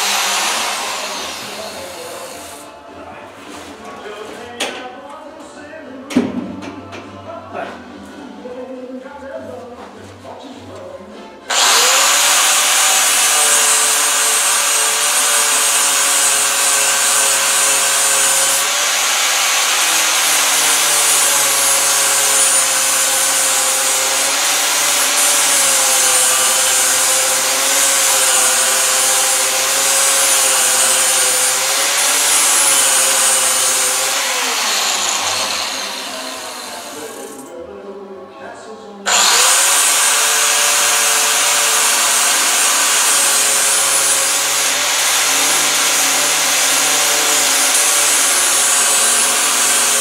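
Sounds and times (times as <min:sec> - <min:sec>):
angle grinder grinding metal: 0:00.0 - 0:02.7, 0:11.5 - 0:37.5, 0:39.1 - 0:50.0.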